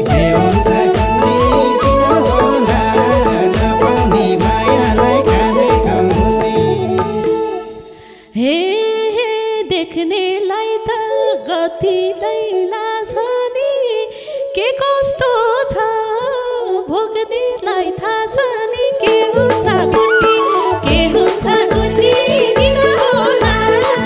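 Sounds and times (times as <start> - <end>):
held accompanying note: 0.0 - 8.1
band instruments: 0.0 - 8.2
woman singing: 0.0 - 24.0.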